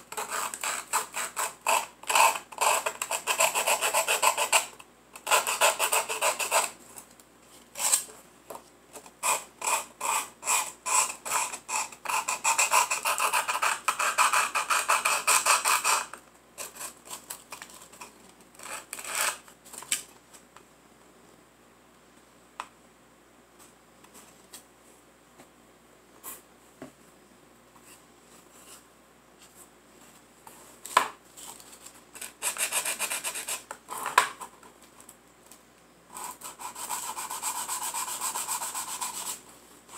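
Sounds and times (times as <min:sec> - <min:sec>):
sandpaper scratching on wood: 0:36.2 - 0:39.4.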